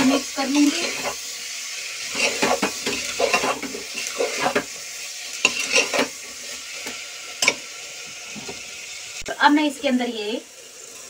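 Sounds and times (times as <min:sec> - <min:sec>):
faint frying sizzle: 0:00.0 - 0:11.0
metal spoon scraping a pot: 0:00.6 - 0:01.2, 0:02.0 - 0:04.8, 0:05.4 - 0:07.6.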